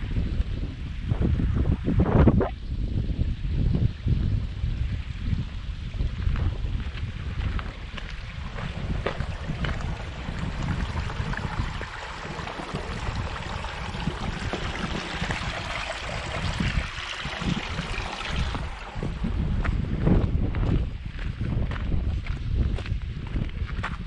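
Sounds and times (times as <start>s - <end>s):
wind buffeting microphone: 0.0s - 24.0s
footsteps on stone and gravel: 5.9s - 9.9s, 18.5s - 24.0s
stream running over rocks: 7.3s - 19.8s.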